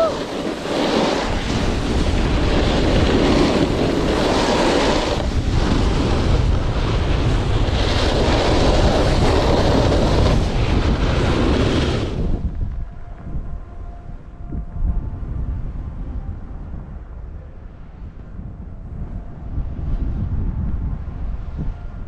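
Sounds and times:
snowboard scraping on snow: 0.0s - 12.5s
wind rumble on microphone: 0.0s - 22.0s.

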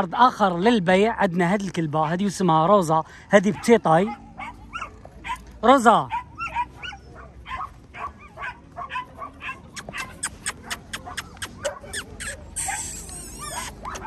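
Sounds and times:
dogs yipping and whining: 3.5s - 14.0s.

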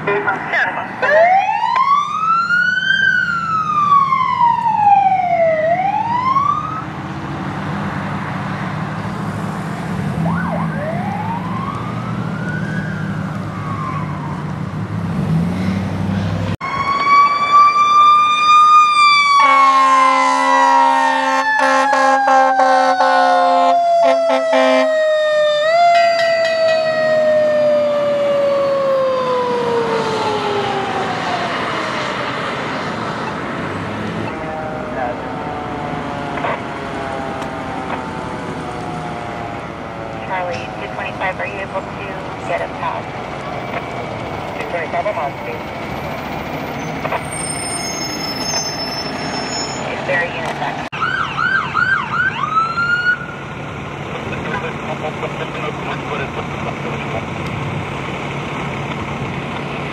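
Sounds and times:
siren wailing: 0.2s - 7.0s, 10.1s - 14.8s, 16.6s - 33.5s, 34.1s - 53.4s
siren winding down in pitch: 1.0s - 7.0s, 10.2s - 14.7s, 16.6s - 32.3s, 34.2s - 39.9s, 50.9s - 53.4s
air horn blasts: 19.4s - 24.9s.

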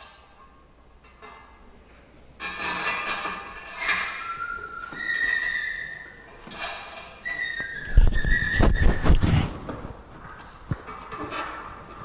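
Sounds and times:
metal parts scraping and clinking: 2.4s - 8.0s
high squeaks: 3.3s - 9.4s.

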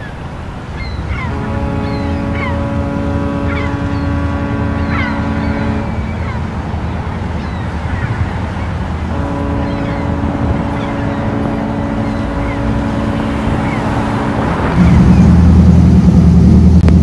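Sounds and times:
boat diesel engines rumbling: 0.0s - 17.0s
steady droning tone: 1.2s - 7.2s.

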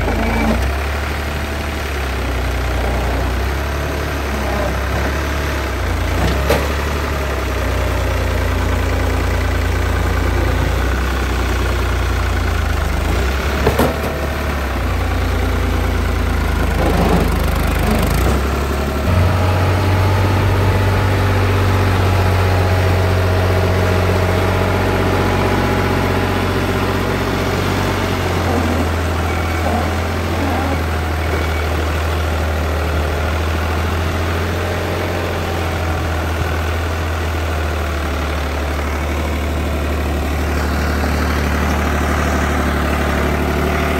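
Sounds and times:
heavy diesel engine running: 0.0s - 43.9s.

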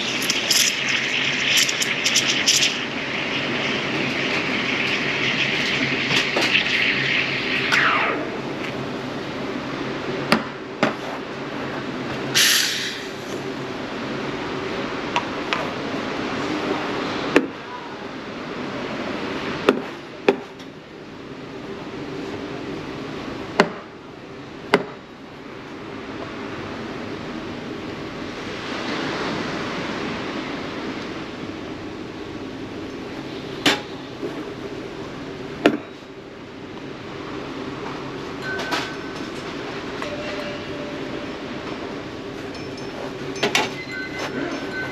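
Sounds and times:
espresso machine humming: 0.0s - 7.7s
steam wand hissing: 0.0s - 8.6s, 12.3s - 13.3s.

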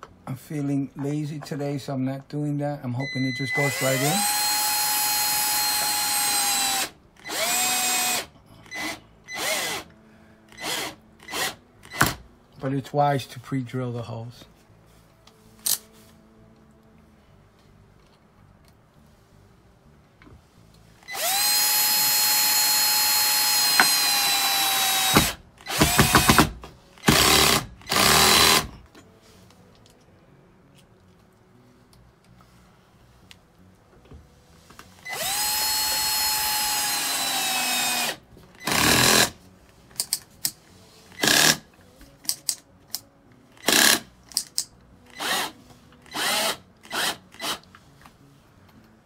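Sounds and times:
cordless drill driving a screw: 3.5s - 9.9s, 10.5s - 12.2s, 21.0s - 28.7s, 35.0s - 39.4s, 41.1s - 41.6s, 43.6s - 44.1s, 45.1s - 47.7s.

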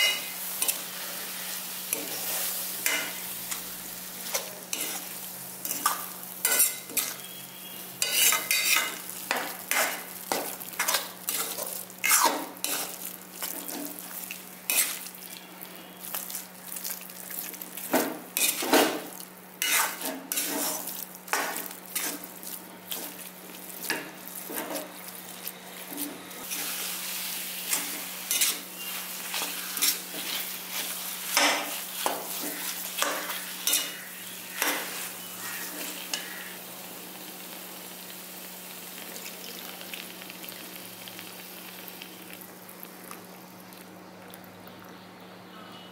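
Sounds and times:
ghee sizzling: 0.0s - 45.1s.

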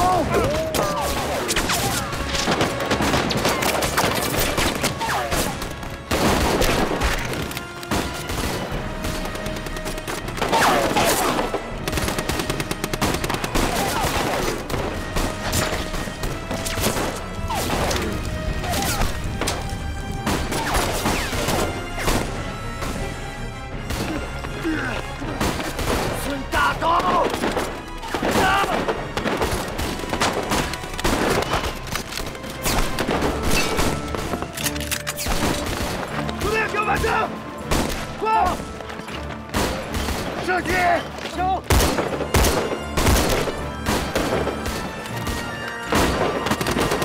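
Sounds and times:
dramatic music score: 0.0s - 47.0s
rifle shots: 41.7s - 47.0s.

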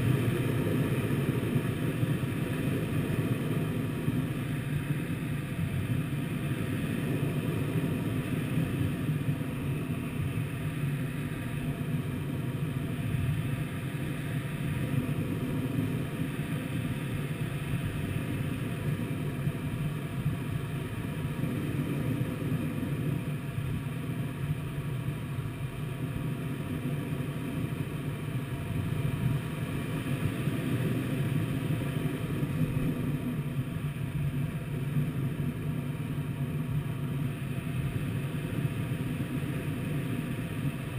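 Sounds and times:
airflow rushing around glider canopy: 0.0s - 40.9s.

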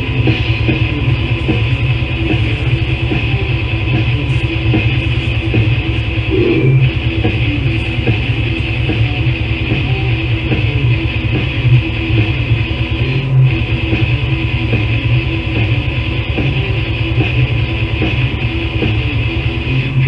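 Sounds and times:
death metal band playing: 0.0s - 20.0s.

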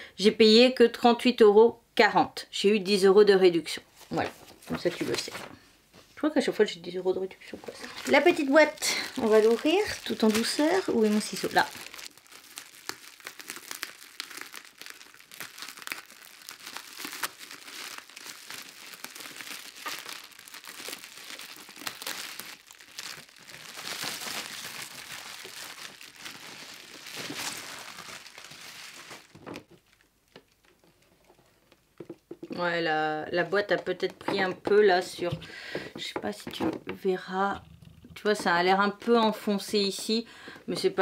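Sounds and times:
bubble wrap crinkling: 4.1s - 5.6s, 7.6s - 32.7s.

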